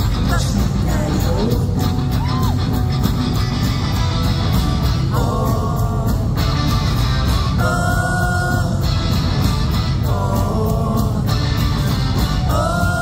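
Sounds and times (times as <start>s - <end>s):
man singing: 0.0s - 2.2s, 5.1s - 6.6s, 7.6s - 9.0s, 10.0s - 11.4s, 12.4s - 13.0s
live rock band playing: 0.0s - 13.0s.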